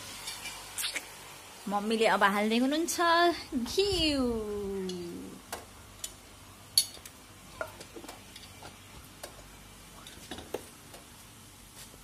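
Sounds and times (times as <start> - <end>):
tongs working a frying pan: 0.0 - 1.1, 4.7 - 11.1
metal utensils clinking on pans: 6.8 - 8.8.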